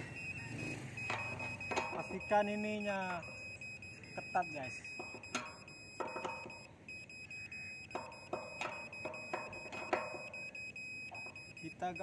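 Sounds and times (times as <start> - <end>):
metallic clicks and clanks: 1.0 - 2.7, 4.8 - 6.7, 7.9 - 11.5.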